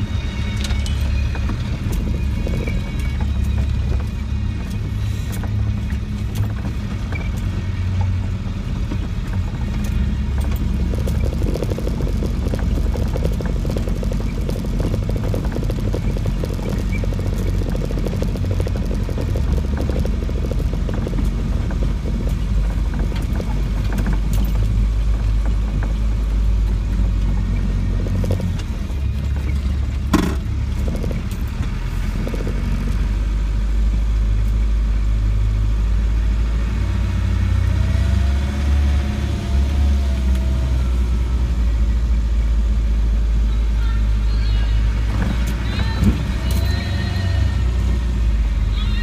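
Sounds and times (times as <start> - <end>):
diesel engine droning: 0.0 - 49.0
bodywork knocks and rattles: 0.8 - 33.0.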